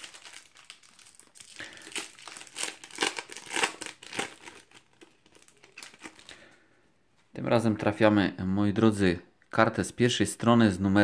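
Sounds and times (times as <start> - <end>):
foil packet torn and crinkled: 0.0 - 6.4.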